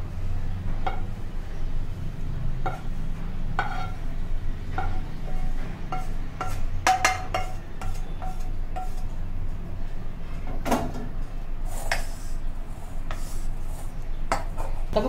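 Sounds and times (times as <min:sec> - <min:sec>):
low steady hum: 0:00.0 - 0:15.0
spatula knocking on steel bowl: 0:00.8 - 0:01.2, 0:02.6 - 0:04.0, 0:04.8 - 0:09.0
spatula scraping pan: 0:02.6 - 0:09.2, 0:11.7 - 0:14.8.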